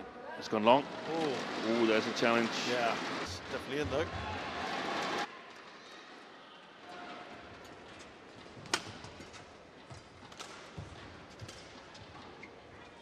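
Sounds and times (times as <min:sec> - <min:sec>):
faint arena hum: 0:00.0 - 0:13.0
racket hitting shuttlecock: 0:08.6 - 0:10.8.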